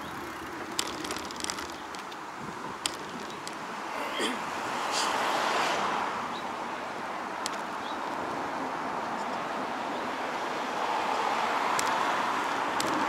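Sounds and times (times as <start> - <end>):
passing car: 2.5 - 13.0.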